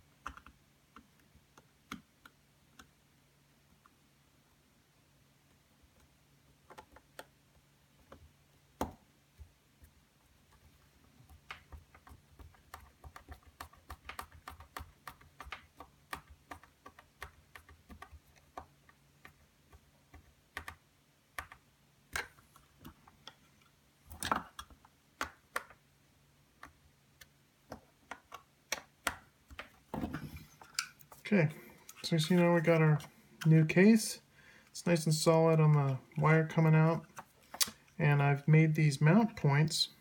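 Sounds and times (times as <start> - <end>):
plastic parts and screws clicking: 26.6 - 31.2.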